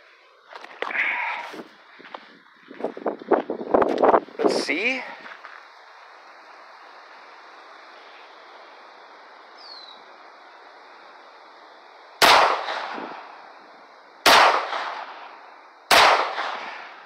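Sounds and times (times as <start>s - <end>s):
pistol shots with echo: 12.2s - 13.2s, 14.2s - 15.3s, 15.9s - 17.0s.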